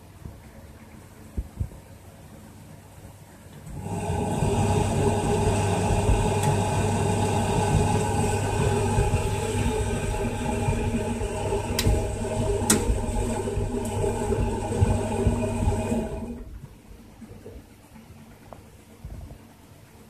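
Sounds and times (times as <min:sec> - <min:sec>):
washing machine drum turning: 0:03.7 - 0:16.8.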